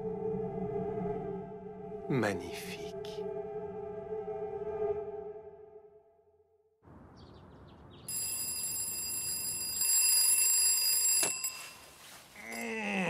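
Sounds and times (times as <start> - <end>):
bird chirps: 7.0 - 8.1
alarm clock ringing: 8.1 - 11.9.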